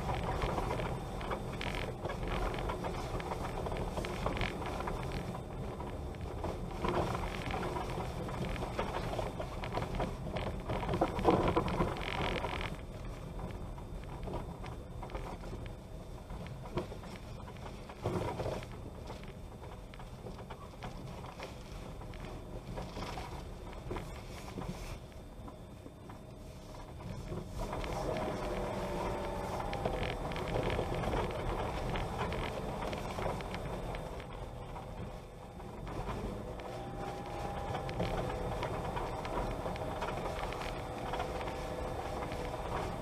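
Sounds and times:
bicycle rattling on dirt road: 0.0 - 43.0.

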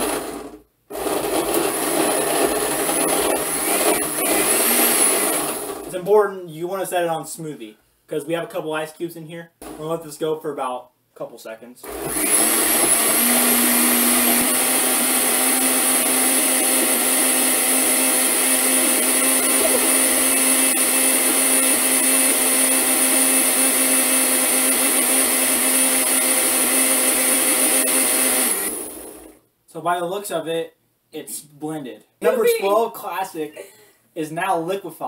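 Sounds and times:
blender running: 0.0 - 5.9, 11.8 - 29.4.

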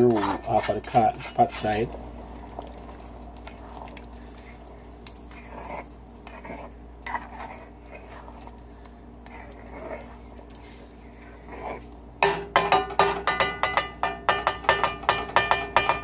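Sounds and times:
spoon scraping a pot: 0.0 - 1.7, 2.7 - 16.0
steady low hum: 0.0 - 16.0
liquid swishing: 1.2 - 12.0.

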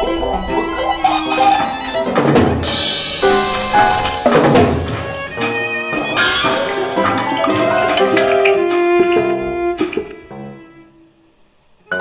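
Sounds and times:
sharp ringing percussion strikes: 0.0 - 8.2
bowed string notes: 0.0 - 12.0.

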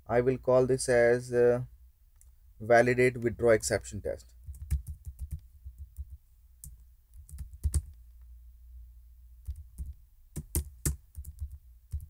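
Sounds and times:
computer keyboard typing: 4.4 - 8.0, 9.4 - 12.0.

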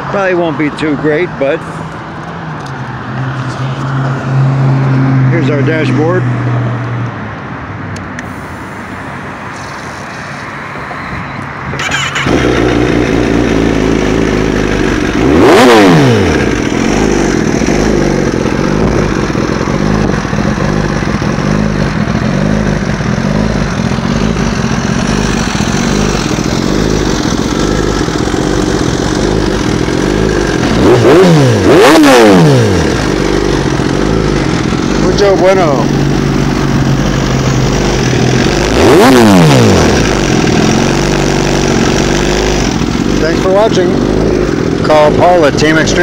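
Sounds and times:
motorcycle engine revving: 11.1 - 46.0
motorcycle engine starting and idling: 11.7 - 46.0.

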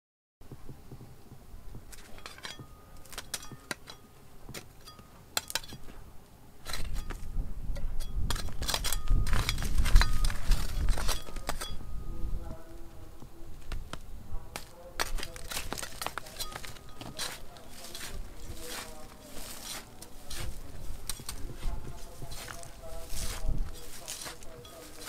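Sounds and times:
metal trowel scraping gravel: 1.9 - 6.0, 6.6 - 12.0, 14.6 - 25.0.

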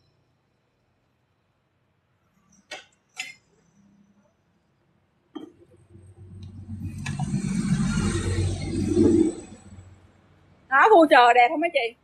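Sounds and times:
rushing noise: 5.9 - 10.1.

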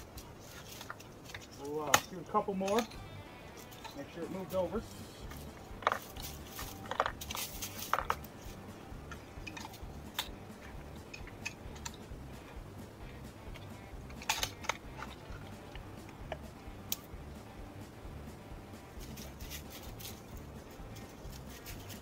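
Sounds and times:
rifle metallic clicks and clatter: 0.0 - 4.2, 5.3 - 12.1, 13.5 - 17.1, 19.0 - 20.3.

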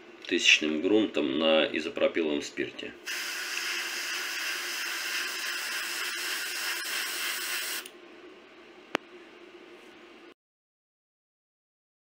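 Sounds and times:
airbrush air hiss: 3.1 - 7.9.

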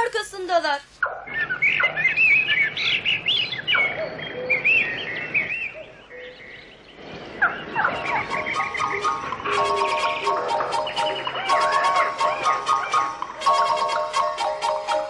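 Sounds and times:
birds chirping: 0.2 - 15.0
music: 8.4 - 15.0.

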